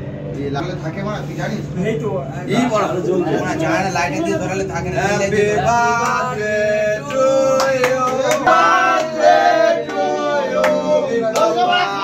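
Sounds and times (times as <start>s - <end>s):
men singing together: 4.9s - 12.0s
hand claps: 6.0s - 6.3s, 7.0s - 11.6s.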